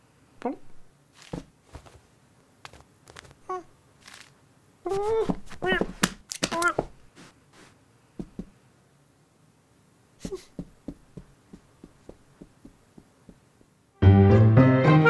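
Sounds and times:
cartoon cat footsteps: 0:00.4 - 0:08.6, 0:10.2 - 0:13.8
faint taps: 0:08.2 - 0:08.5, 0:10.2 - 0:13.8.

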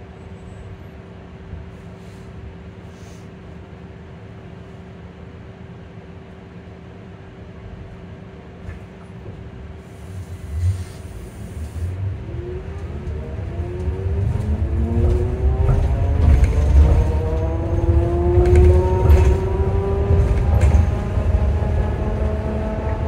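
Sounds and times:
bus rumble: 0:00.0 - 0:23.0
electric bus motor hum: 0:00.0 - 0:23.0
traction motor whine: 0:11.7 - 0:23.0.

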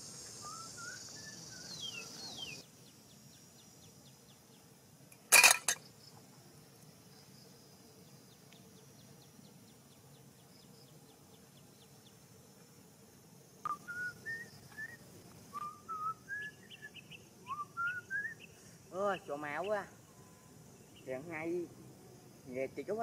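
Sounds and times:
bird whistling upward notes: 0:00.4 - 0:02.6, 0:13.7 - 0:18.5.

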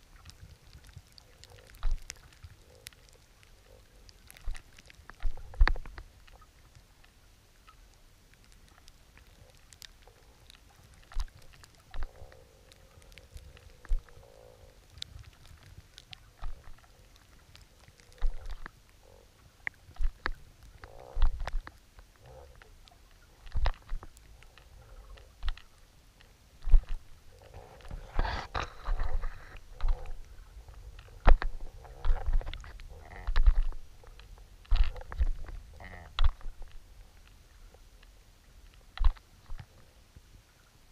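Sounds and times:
rushes of water noise: 0:00.0 - 0:40.9
underwater knocks and thumps: 0:04.4 - 0:06.0, 0:20.0 - 0:21.7, 0:23.4 - 0:24.1, 0:26.6 - 0:27.1, 0:27.7 - 0:30.3, 0:31.0 - 0:36.8, 0:39.0 - 0:39.7
scraping on mussel bottom: 0:26.6 - 0:36.8.

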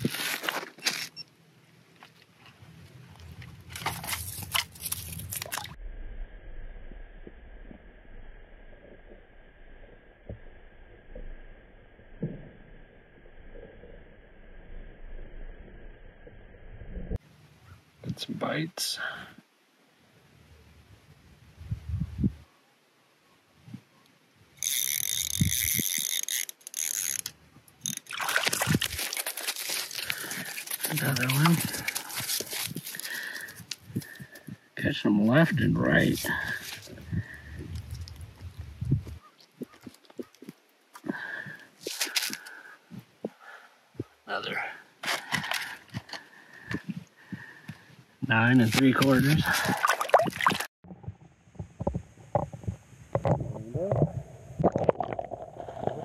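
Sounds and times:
gear crunching and scraping on ice: 0:00.0 - 0:01.2, 0:02.0 - 0:05.8, 0:24.6 - 0:34.5, 0:35.9 - 0:41.1, 0:41.8 - 0:42.6, 0:45.0 - 0:46.8, 0:48.5 - 0:50.7
fishing reel whirring: 0:24.6 - 0:28.1
fish splashing in water: 0:27.8 - 0:33.4, 0:49.4 - 0:50.7.

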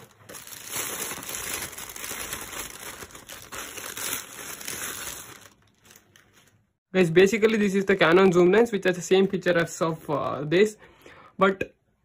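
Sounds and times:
bubble wrap crinkling: 0:00.0 - 0:06.8
plastic bag rustling: 0:00.0 - 0:06.8.

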